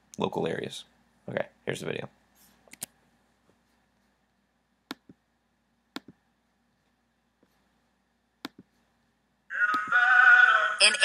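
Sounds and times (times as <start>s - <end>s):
computer mouse clicks: 5.9s - 6.2s, 8.4s - 8.7s.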